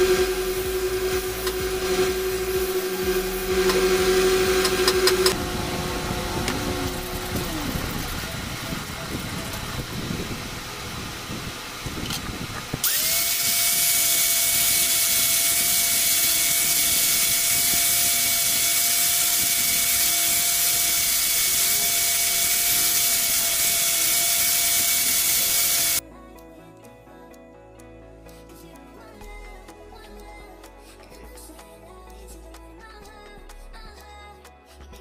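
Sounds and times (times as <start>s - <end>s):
angle grinder motor whine: 0.0s - 26.0s
grinder grinding steel: 0.0s - 26.0s.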